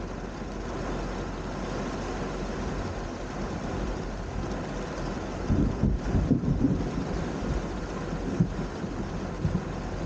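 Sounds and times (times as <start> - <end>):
steady rain: 0.0 - 10.0
rumble of thunder: 5.4 - 9.8.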